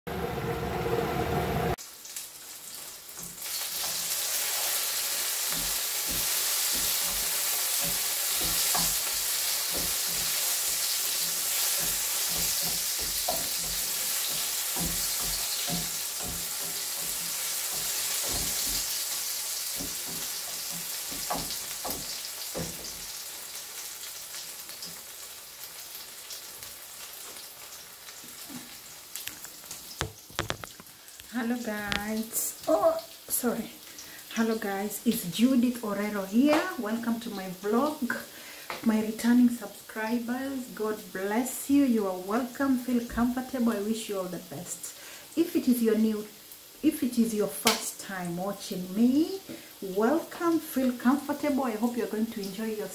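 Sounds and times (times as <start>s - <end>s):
onions sizzling in a frying pan: 1.5s - 52.9s
spatula knocking and scraping pan: 3.2s - 23.2s.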